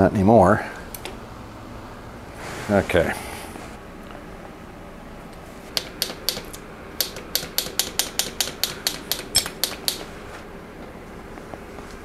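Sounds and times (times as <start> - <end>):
bicycle mechanical clicking: 5.8 - 10.0.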